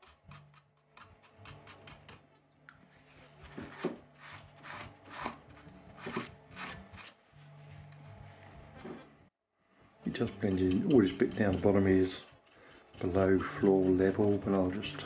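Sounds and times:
brush rubbing on painted wall: 0:02.9 - 0:09.0, 0:10.1 - 0:15.0.

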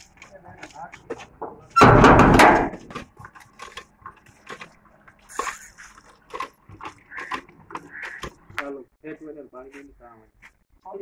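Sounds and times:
metal gate rattling and scraping: 0:00.0 - 0:08.7
faint clicks and knocks: 0:02.7 - 0:08.7.

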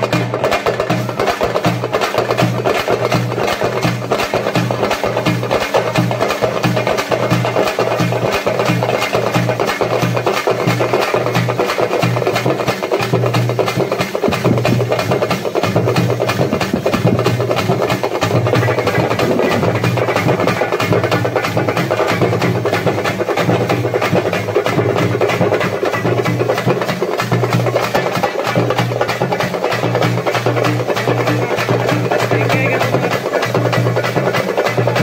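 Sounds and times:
hand drums fast beat: 0:00.0 - 0:35.0.

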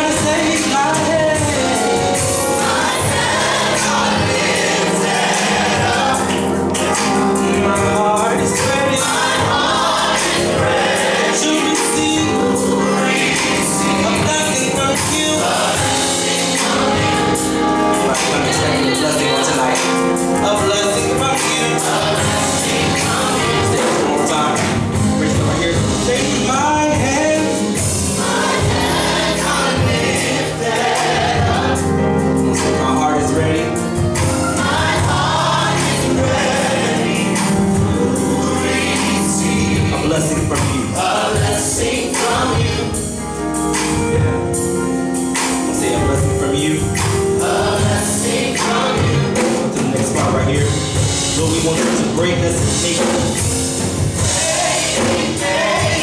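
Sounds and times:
group singing in harmony: 0:00.0 - 0:44.6, 0:47.0 - 0:50.6, 0:53.3 - 0:56.0
instrumental backing with beat: 0:00.0 - 0:56.0.

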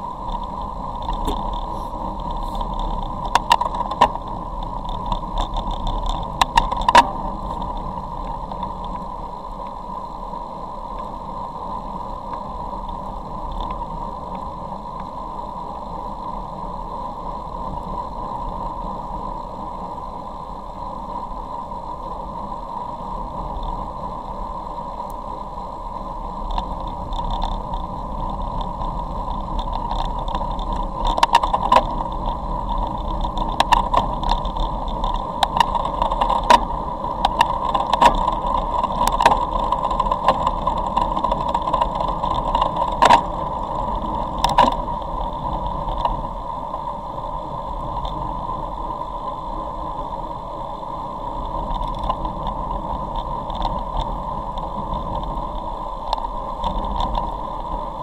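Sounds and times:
wind and road noise rushing: 0:00.0 - 0:58.0
sharp clicks and knocks: 0:00.3 - 0:07.9, 0:26.5 - 0:43.4, 0:44.2 - 0:46.2.

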